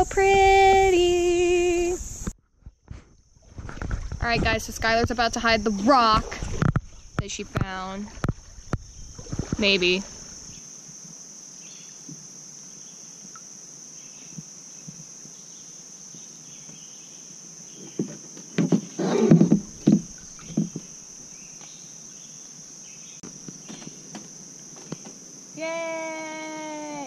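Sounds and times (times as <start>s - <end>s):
insects droning: 0.0s - 27.0s
kayak bumping against rock: 17.7s - 21.8s, 23.2s - 25.3s.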